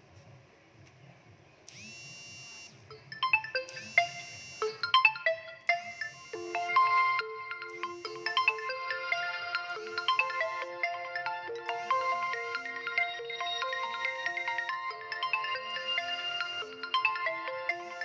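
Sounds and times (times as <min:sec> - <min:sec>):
marimba-like ringtone melody: 0:02.9 - 0:18.0.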